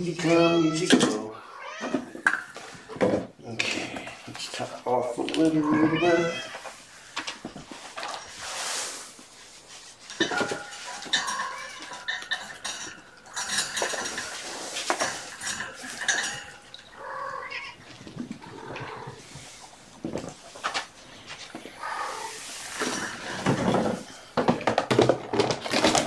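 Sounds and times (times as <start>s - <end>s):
small hard objects clinking: 10.0s - 19.0s
kitten mewing: 17.0s - 19.2s.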